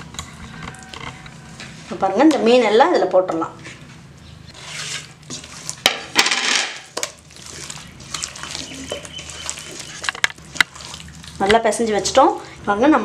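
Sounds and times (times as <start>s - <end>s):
wet rubbing and stirring by hand: 0.0s - 13.0s.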